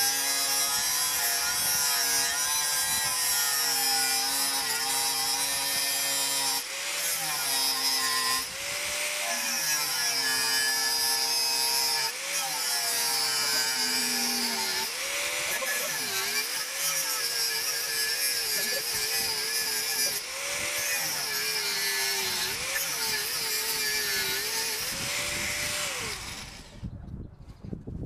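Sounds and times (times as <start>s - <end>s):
angle grinder cutting steel: 0.0s - 26.8s.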